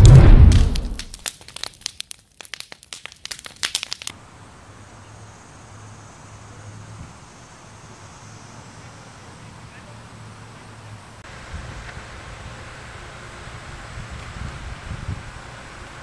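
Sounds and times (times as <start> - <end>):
deep boom: 0.0 - 1.1
sharp crackles: 0.0 - 4.2
outdoor background noise with hum: 4.1 - 16.0.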